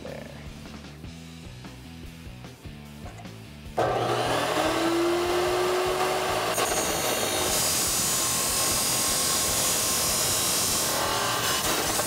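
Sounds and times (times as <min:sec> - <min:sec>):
chop saw motor whine: 0:03.8 - 0:12.0
saw grinding through metal pipe: 0:03.8 - 0:12.0.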